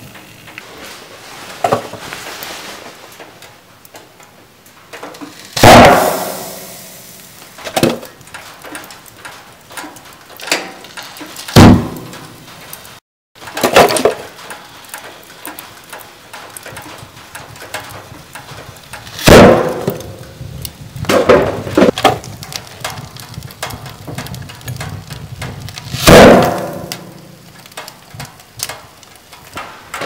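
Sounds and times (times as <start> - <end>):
cartons bursting with loud bangs: 5.4 - 8.6, 11.2 - 12.6, 19.0 - 20.3, 25.8 - 27.8.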